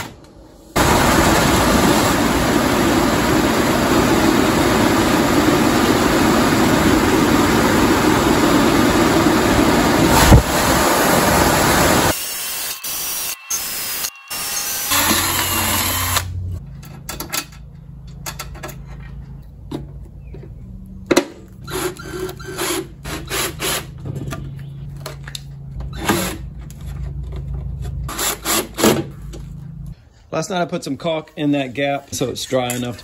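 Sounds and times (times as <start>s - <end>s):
blower air rush: 0.4s - 12.2s.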